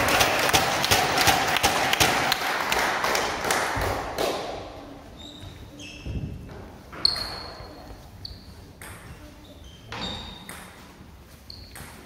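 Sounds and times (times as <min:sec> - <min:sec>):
table tennis ball bouncing: 0:08.8 - 0:09.2, 0:09.9 - 0:10.9, 0:11.6 - 0:12.0.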